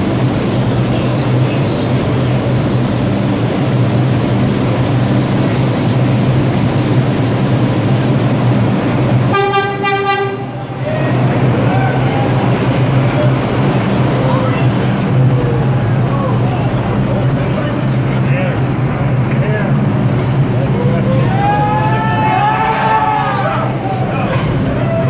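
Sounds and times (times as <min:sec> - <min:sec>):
subway train wheels and motors rumbling: 0:00.0 - 0:25.0
train horn blast: 0:09.3 - 0:10.7, 0:24.2 - 0:24.8.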